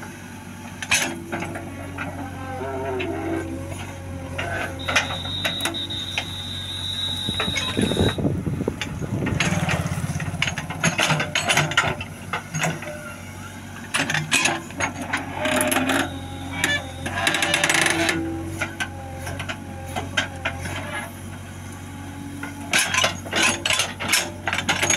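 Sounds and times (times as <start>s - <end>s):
diesel engine under load: 0.0s - 24.9s
digger bucket clanking: 0.8s - 24.9s
steady high whistle: 4.8s - 8.2s.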